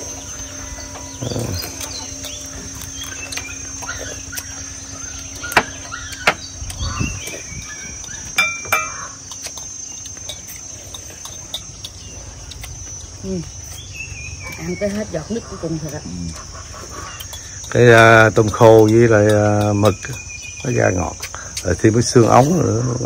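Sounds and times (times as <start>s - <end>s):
birds chirping: 0.0s - 23.0s
insects droning: 0.0s - 23.0s
utensils clicking on ceramic bowls: 17.2s - 20.1s.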